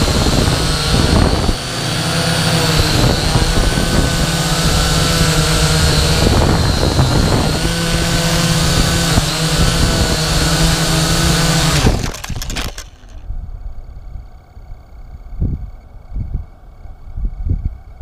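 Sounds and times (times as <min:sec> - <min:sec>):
drone motors whining: 0:00.0 - 0:13.5
drone crashing into grass: 0:11.7 - 0:13.2.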